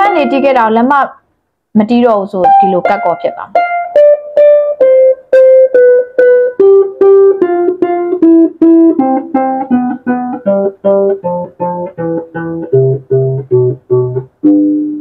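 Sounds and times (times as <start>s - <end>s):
harp plucked notes: 0.0s - 0.8s, 2.4s - 15.0s.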